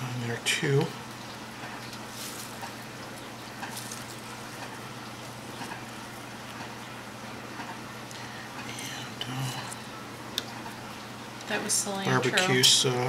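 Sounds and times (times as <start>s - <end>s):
low hum and hiss: 0.0s - 13.0s
faint rustles of herbs scattered: 1.8s - 6.2s.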